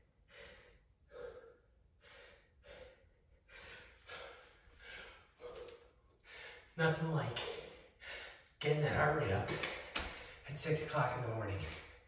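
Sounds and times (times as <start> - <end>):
man breathing heavily: 0.0 - 6.8, 7.4 - 8.6.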